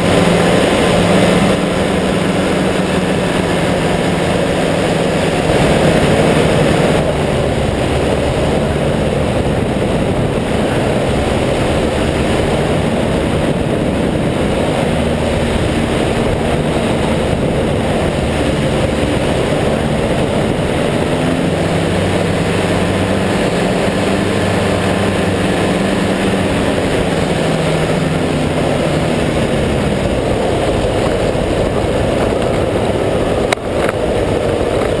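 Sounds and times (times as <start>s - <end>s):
air rushing past microphone: 0.0s - 35.0s
ultralight engine and propeller: 0.0s - 35.0s.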